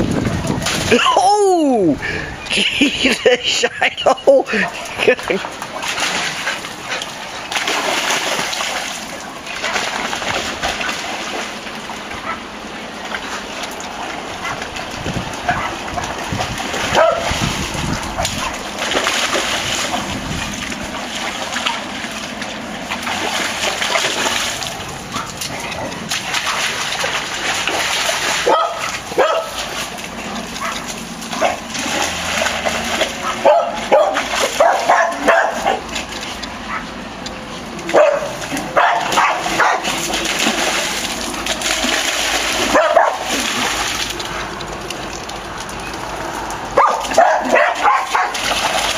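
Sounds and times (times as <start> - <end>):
paws splashing in water: 0.0 - 1.1, 4.0 - 48.9
dogs barking: 4.5 - 5.0, 12.0 - 12.6, 14.2 - 14.8, 15.4 - 19.0, 24.9 - 27.2, 28.2 - 32.3, 33.0 - 37.0, 37.8 - 40.1, 42.6 - 43.6, 46.7 - 48.9.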